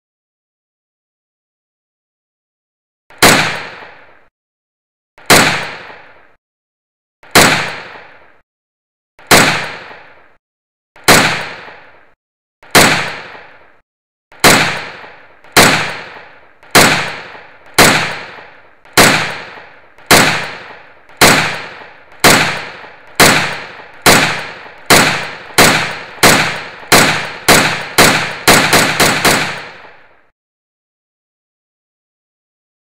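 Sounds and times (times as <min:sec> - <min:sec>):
echoing gunshots: 0:03.1 - 0:04.3, 0:05.2 - 0:06.4, 0:07.2 - 0:08.4, 0:09.2 - 0:10.4, 0:11.0 - 0:30.3.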